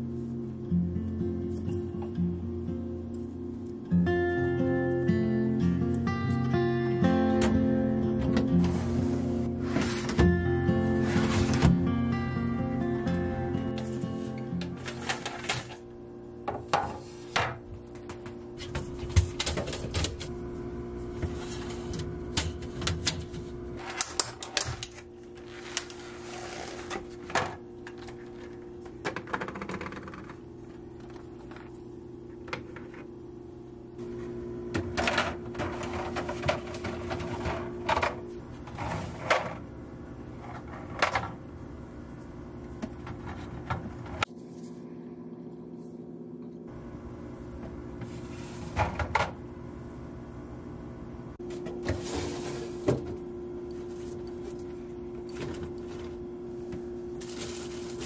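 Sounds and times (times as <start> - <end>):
steady hum: 0.0 - 58.0.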